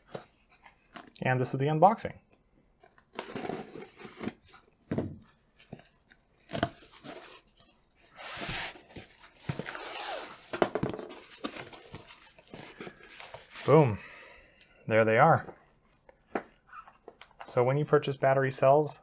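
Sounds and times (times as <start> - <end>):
packing tape tearing: 2.8 - 4.5, 9.5 - 10.5
cardboard flaps rustling: 3.2 - 13.8.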